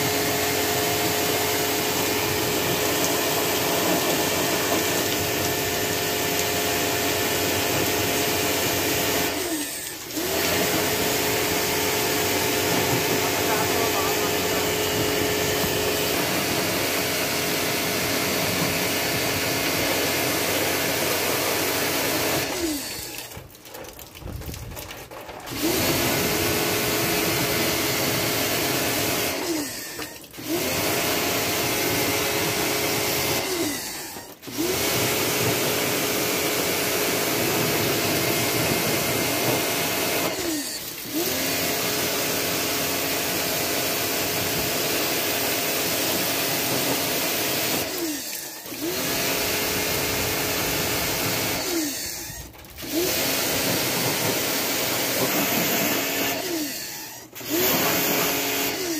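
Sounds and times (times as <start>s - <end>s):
pressure washer motor running: 0.0s - 23.6s, 25.5s - 58.9s
water spray hissing: 7.8s - 16.9s.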